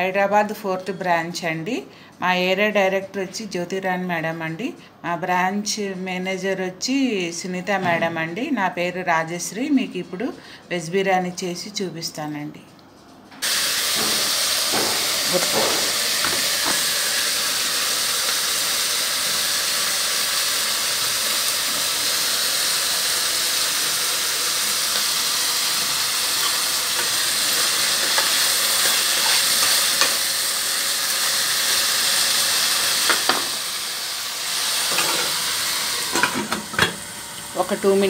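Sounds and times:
vegetables sizzling in oil: 0:13.4 - 0:38.0.

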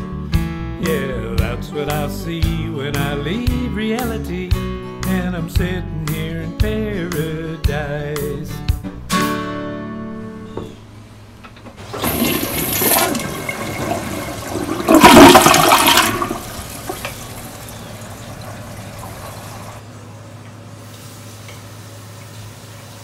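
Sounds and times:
acoustic guitar chord ringing: 0:07.4 - 0:10.4
toilet flushing: 0:11.7 - 0:19.9.

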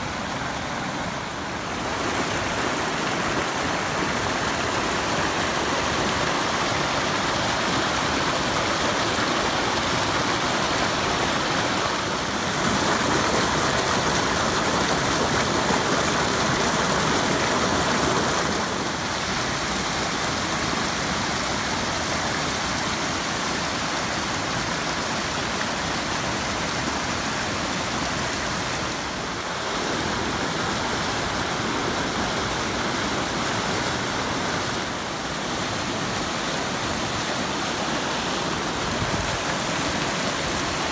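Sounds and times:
water rushing over rocks: 0:00.0 - 0:40.9.

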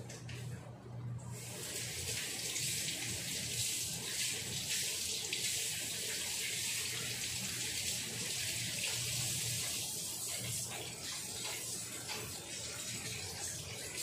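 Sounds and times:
pan simmering on gas burner: 0:01.4 - 0:14.0.

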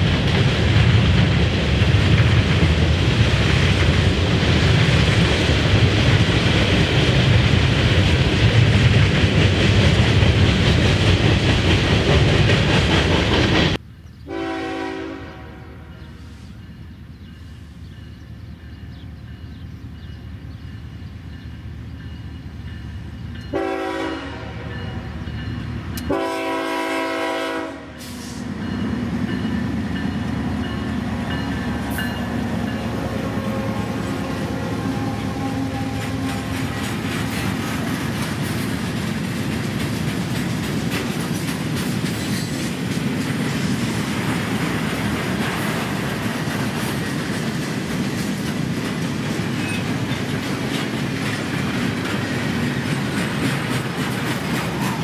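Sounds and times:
train wheels clickety-clack: 0:00.0 - 0:13.8, 0:16.2 - 0:55.0
diesel locomotive rumble: 0:00.0 - 0:55.0
train horn blasts: 0:14.3 - 0:16.6, 0:23.4 - 0:25.2, 0:26.0 - 0:28.6, 0:30.6 - 0:37.8.

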